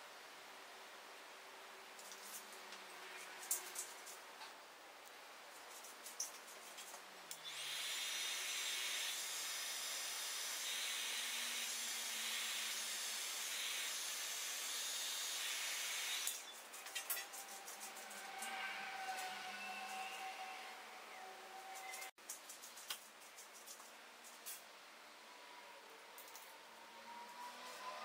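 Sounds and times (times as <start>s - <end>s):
heat gun blowing hot air: 7.4s - 16.4s.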